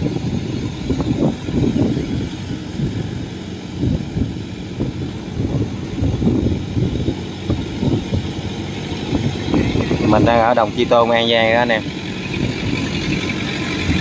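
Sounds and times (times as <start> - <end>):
diesel engine under load: 0.0 - 14.0.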